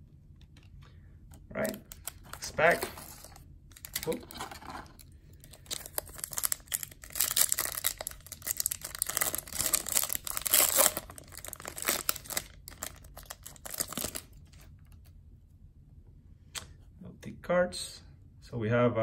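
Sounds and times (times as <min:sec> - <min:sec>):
foil wrapper tearing and crinkling: 0:01.9 - 0:14.6.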